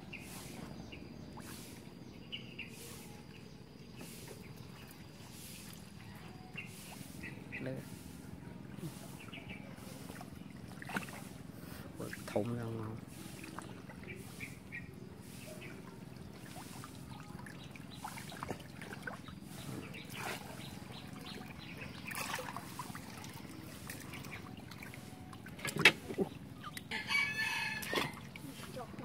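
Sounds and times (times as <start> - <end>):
water trickling and dripping: 2.6 - 29.0.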